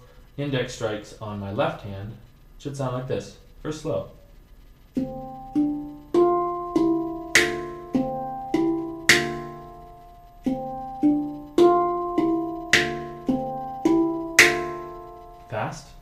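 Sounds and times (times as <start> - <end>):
handpan slaps: 5.0 - 15.6
handpan ringing notes: 5.0 - 16.0.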